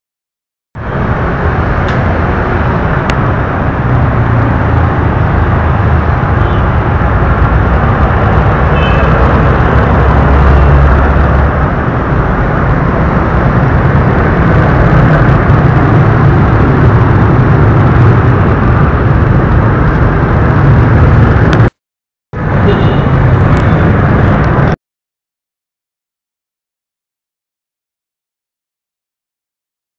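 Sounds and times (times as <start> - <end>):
engine rumble of passing vehicles: 0.8 - 21.7, 22.4 - 24.8
road traffic noise: 0.8 - 24.8.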